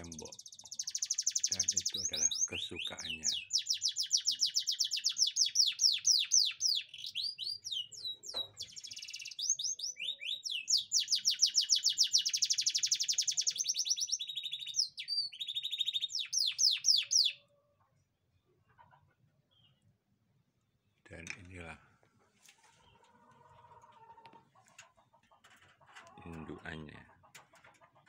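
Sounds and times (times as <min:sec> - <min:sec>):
canary singing: 0:00.0 - 0:17.6.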